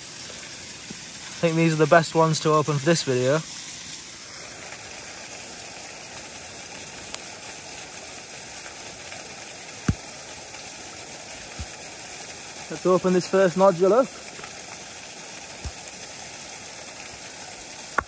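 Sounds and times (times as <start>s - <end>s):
waterfall rushing: 10.6s - 17.2s.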